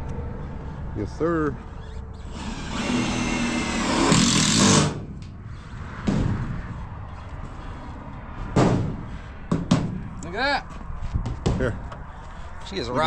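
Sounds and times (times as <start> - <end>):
power drill motor whining: 1.8 - 5.0.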